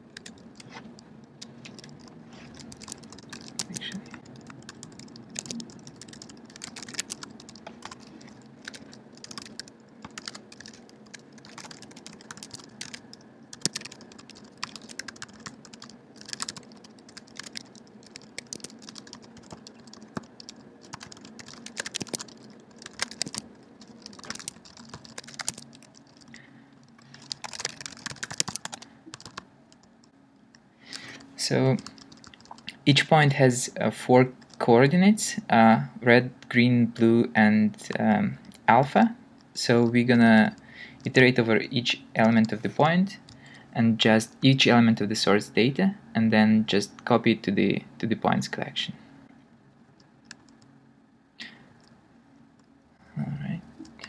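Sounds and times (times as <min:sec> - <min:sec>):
computer keyboard typing: 0:00.1 - 0:00.8, 0:01.4 - 0:29.9, 0:30.9 - 0:32.8, 0:34.4 - 0:34.6, 0:42.2 - 0:42.7, 0:50.2 - 0:50.7.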